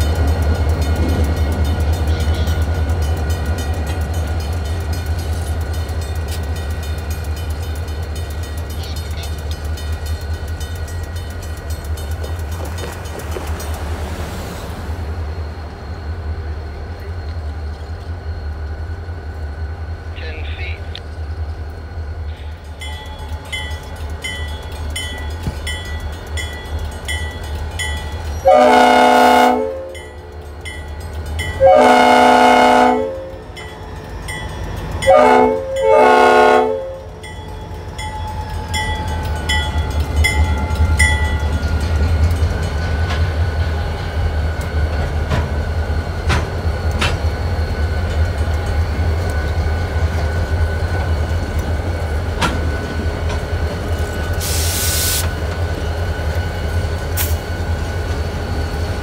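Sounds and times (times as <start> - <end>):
crossing bell dinging: 0.0 - 14.5, 22.5 - 44.0
diesel locomotive engines passing: 0.0 - 59.0
train air horn: 28.4 - 30.0, 31.6 - 33.4, 35.1 - 37.1.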